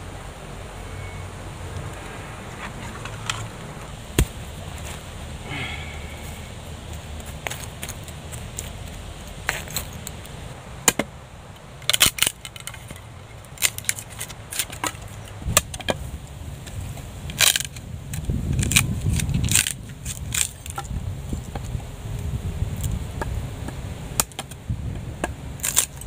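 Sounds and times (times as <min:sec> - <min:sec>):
low handling rumble: 0:00.0 - 0:13.5.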